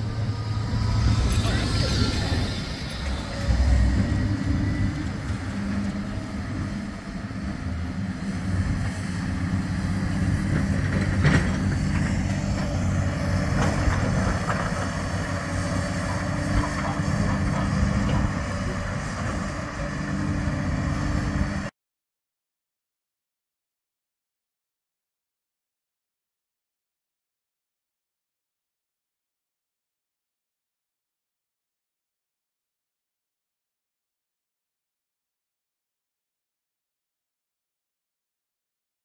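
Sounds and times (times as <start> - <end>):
excavator diesel engines droning: 0.0 - 21.7.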